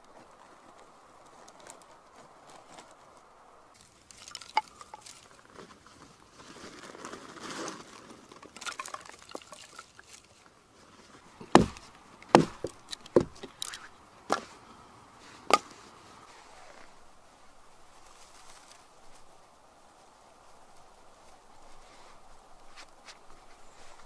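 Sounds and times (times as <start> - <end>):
twigs rustling: 0.0 - 24.0
hatchet chopping wood: 11.4 - 13.6.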